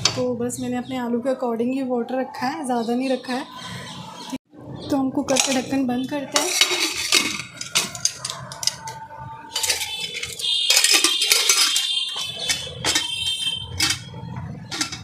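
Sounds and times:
lid scraping and ringing: 5.3s - 15.0s
metal lid clinking against rim: 5.3s - 15.0s.

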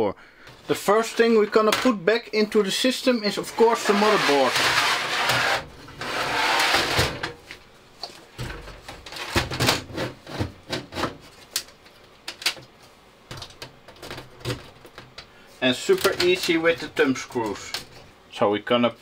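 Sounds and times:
metal board scraping in chassis: 3.6s - 7.3s.

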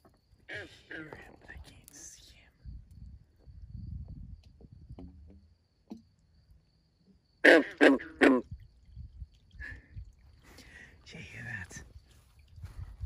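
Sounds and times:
frog croaking: 4.9s - 8.9s.

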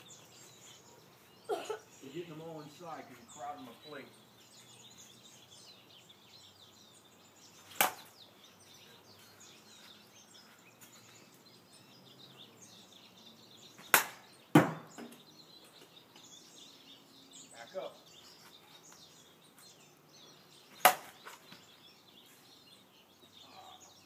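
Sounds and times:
plastic toy bat smacking ball: 7.8s - 8.1s, 13.9s - 15.1s, 20.8s - 21.2s.

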